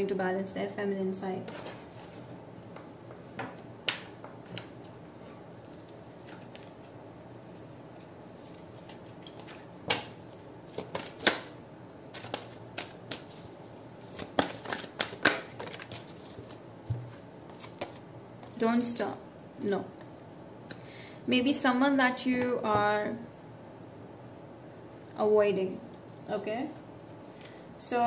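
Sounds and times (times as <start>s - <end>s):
cards being shuffled: 7.9s - 18.6s.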